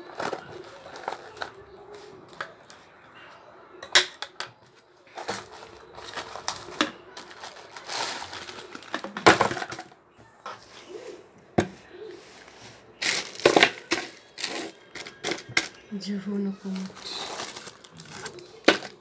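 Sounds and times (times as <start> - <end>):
paper and plastic bags rustling: 0.0 - 2.8, 4.7 - 9.9, 12.2 - 19.0.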